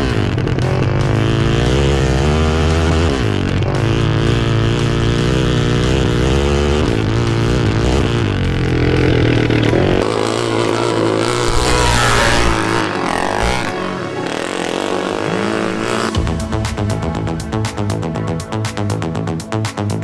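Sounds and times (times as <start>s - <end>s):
off-road vehicle engines revving: 0.0s - 20.0s.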